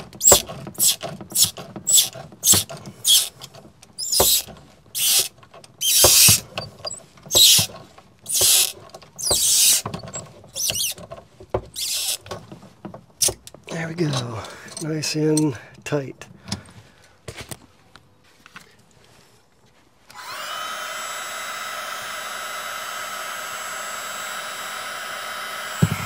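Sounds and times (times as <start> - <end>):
wrench scraping and clicking: 0.0 - 15.6.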